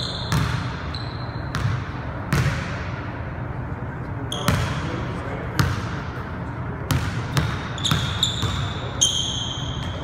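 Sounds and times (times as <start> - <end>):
sneaker squeak: 0.0 - 2.5, 4.3 - 5.0, 6.9 - 10.0
basketball bouncing on hardwood floor: 0.3 - 0.8, 1.5 - 2.6, 6.9 - 8.7.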